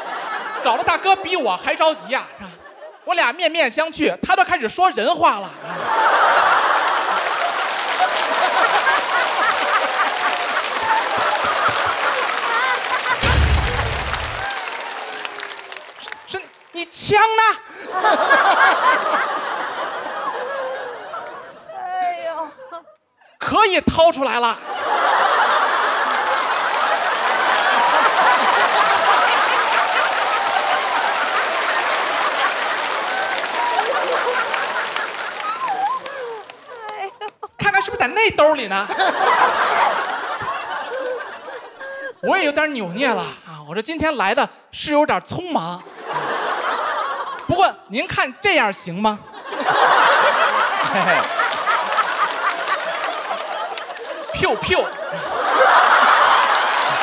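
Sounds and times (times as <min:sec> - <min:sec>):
audience laughing: 0:00.0 - 0:03.1, 0:05.6 - 0:15.2, 0:17.7 - 0:23.0, 0:24.6 - 0:43.3, 0:45.8 - 0:47.5, 0:49.3 - 0:57.0
audience clapping: 0:05.8 - 0:16.8, 0:18.1 - 0:21.5, 0:24.8 - 0:37.5, 0:39.0 - 0:42.0, 0:46.1 - 0:47.5, 0:49.6 - 0:57.0.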